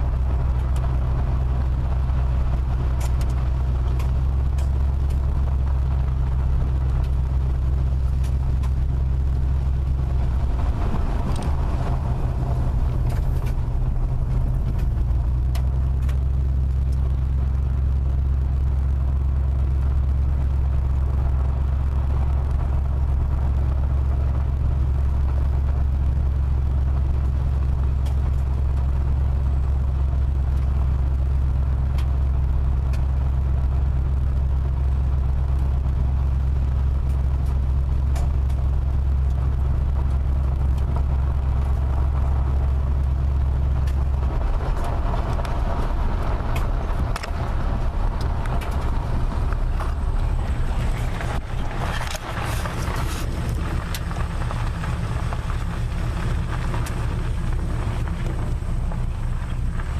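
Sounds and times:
car driving on gravel: 0:00.0 - 0:59.9
light ticks: 0:02.6 - 0:06.0, 0:06.6 - 0:08.9, 0:14.3 - 0:20.1, 0:26.9 - 0:29.4, 0:30.0 - 0:59.9.

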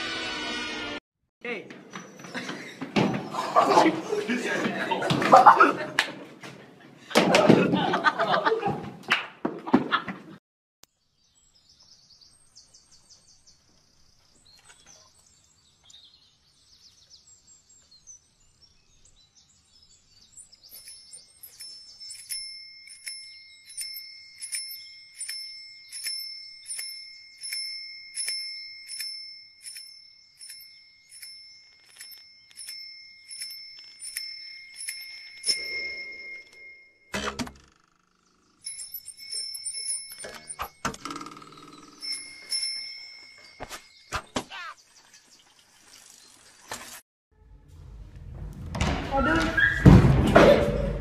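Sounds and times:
faint bird chirping: 0:10.9 - 0:28.9, 0:41.3 - 0:46.8
metal bell struck and ringing: 0:20.8 - 0:37.4, 0:38.6 - 0:40.9
loud thump: 0:48.3 - 0:51.0.

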